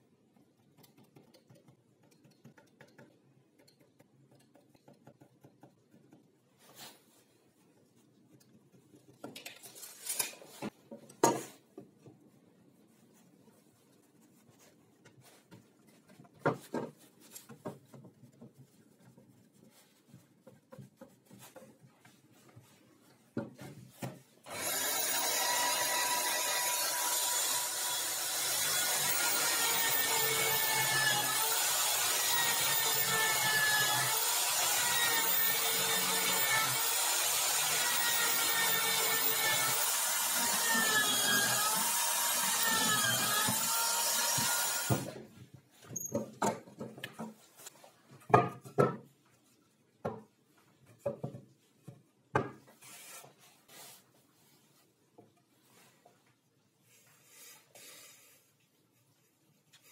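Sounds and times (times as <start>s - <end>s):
electric drill boring into wood: 24.5s - 45.1s.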